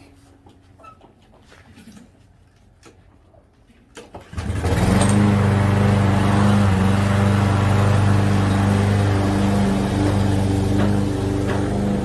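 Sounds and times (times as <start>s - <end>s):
lawn mower engine mowing grass: 4.3s - 12.0s.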